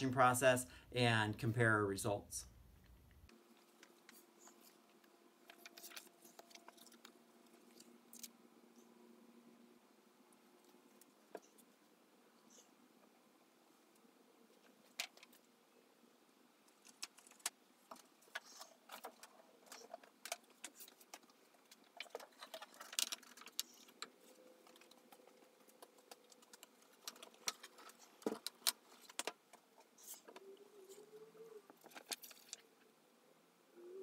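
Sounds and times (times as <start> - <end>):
paper rustling: 5.4 - 7.1.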